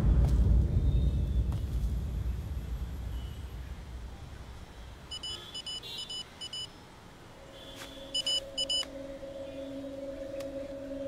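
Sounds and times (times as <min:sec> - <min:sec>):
short electronic beeps: 0:05.1 - 0:06.7, 0:07.9 - 0:08.9.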